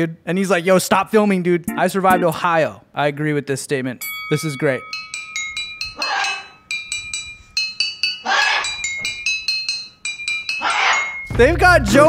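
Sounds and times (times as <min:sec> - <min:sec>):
toy xylophone notes ringing: 0:01.6 - 0:02.4, 0:04.0 - 0:12.0.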